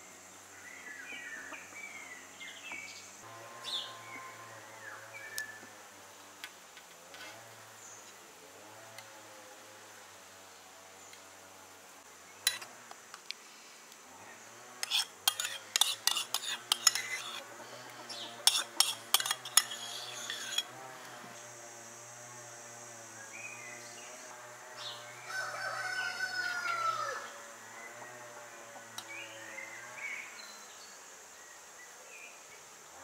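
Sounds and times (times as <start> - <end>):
metal spoon tapping bowl and pan: 12.5 - 12.7, 14.8 - 17.4, 18.5 - 20.7
rooster crowing: 25.1 - 27.5.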